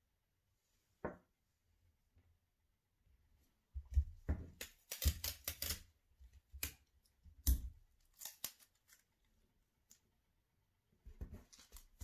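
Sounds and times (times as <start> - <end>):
paper rustling and crinkling: 11.2 - 12.0.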